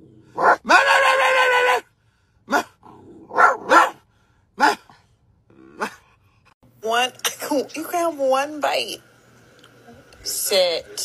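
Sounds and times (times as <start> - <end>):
puppy barking: 0.4 - 1.8, 3.3 - 4.0, 4.6 - 5.0
puppy howl-like bark: 0.4 - 1.9, 3.3 - 4.0, 4.6 - 4.8.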